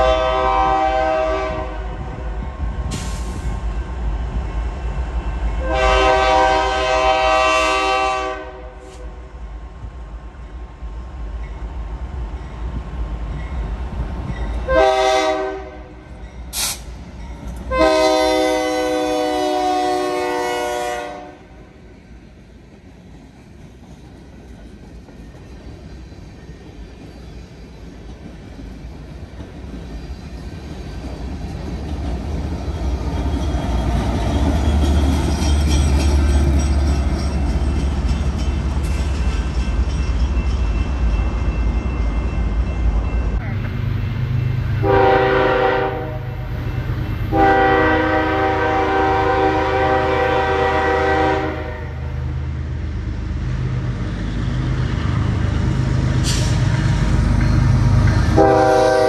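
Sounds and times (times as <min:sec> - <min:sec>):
locomotive air horn blasts: 0:00.0 - 0:02.0, 0:05.6 - 0:09.2, 0:14.7 - 0:16.0, 0:17.7 - 0:21.6, 0:44.7 - 0:46.5, 0:47.2 - 0:52.3, 0:58.3 - 0:59.0
freight cars rumbling on rails: 0:00.0 - 0:59.0.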